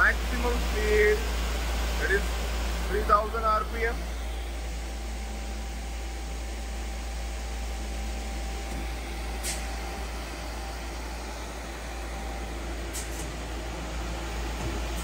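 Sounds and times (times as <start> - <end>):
lathe spindle humming: 0.0 - 15.0
brief hiss: 9.4 - 9.8, 12.9 - 13.3.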